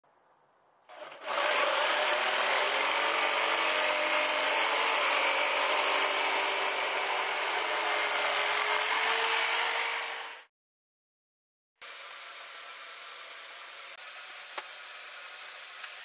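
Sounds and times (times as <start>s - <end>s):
jigsaw cutting plywood: 0.9s - 10.5s.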